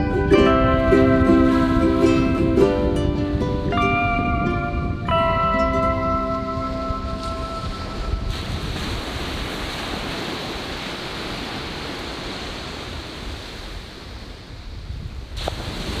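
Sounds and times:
surf washing onto beach: 0:00.0 - 0:16.0
wind rumbling on microphone: 0:00.0 - 0:16.0.

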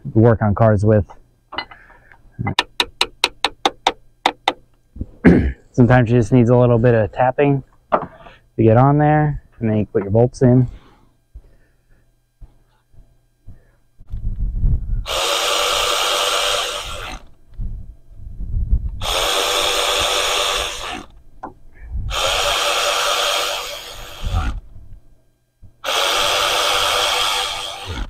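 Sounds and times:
cordless power tool whirring: 0:15.0 - 0:17.4, 0:19.0 - 0:21.2, 0:22.1 - 0:24.6, 0:25.8 - 0:28.0.

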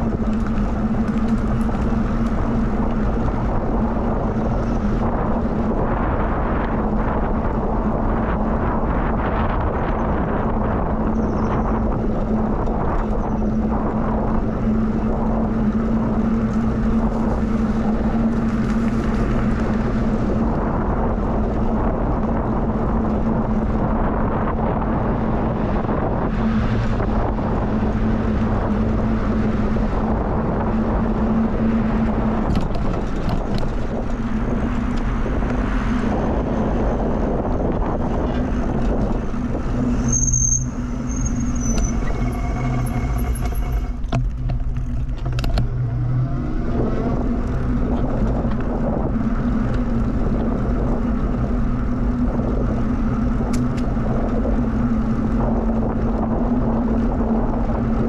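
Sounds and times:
bicycle tyre noise on trail: 0:00.0 - 0:58.0
steady low hum: 0:00.0 - 0:58.0
wind rushing over microphone: 0:00.0 - 0:58.0.

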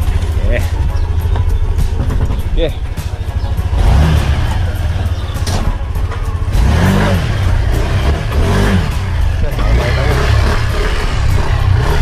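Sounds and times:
scooter engine revving: 0:03.2 - 0:12.0.

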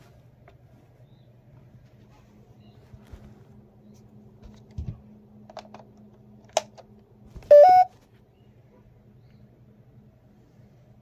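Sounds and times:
smoke alarm beep rising in pitch: 0:07.5 - 0:07.9.

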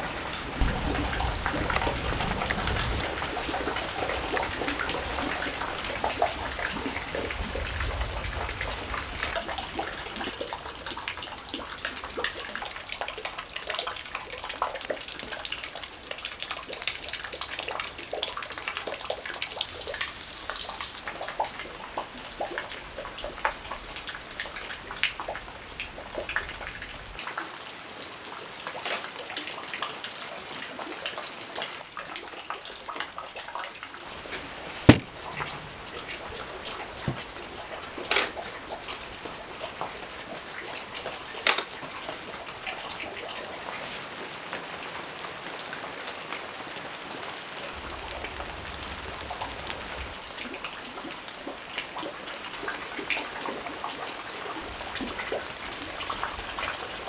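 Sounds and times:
low thunder rumble: 0:00.0 - 0:12.5, 0:47.7 - 0:50.7
heavy rain: 0:00.0 - 0:57.0.

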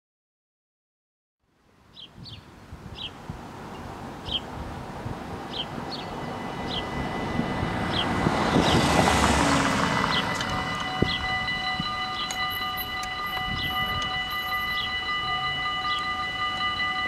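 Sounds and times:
bird chirping: 0:01.9 - 0:04.5, 0:05.5 - 0:09.0, 0:10.0 - 0:16.8
rushing noise: 0:03.2 - 0:17.0
level-crossing warning bells: 0:05.4 - 0:17.0.

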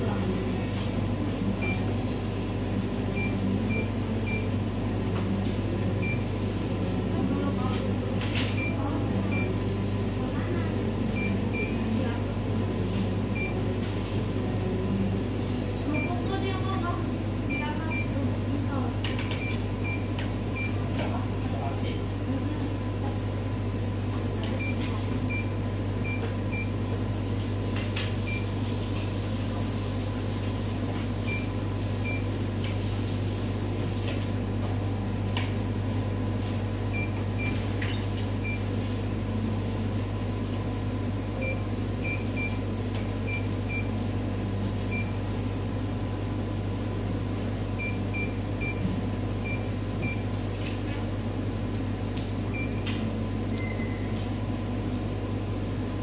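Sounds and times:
steady low hum: 0:00.0 - 0:27.6.

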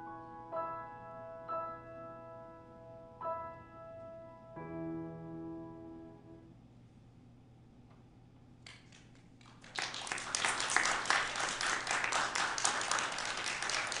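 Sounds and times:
audience applause: 0:09.5 - 0:14.0.

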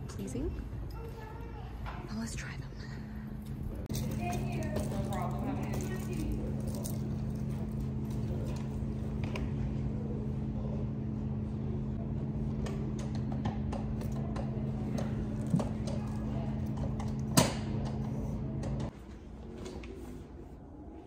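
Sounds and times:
low hum: 0:02.4 - 0:19.0.

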